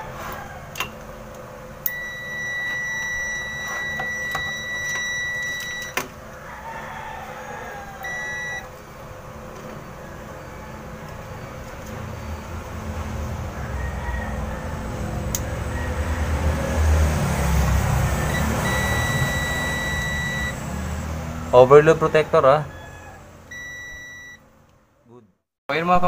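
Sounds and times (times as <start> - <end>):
multimeter continuity beep: 1.8 - 6.0, 8.0 - 8.7, 18.2 - 20.6, 23.5 - 24.4.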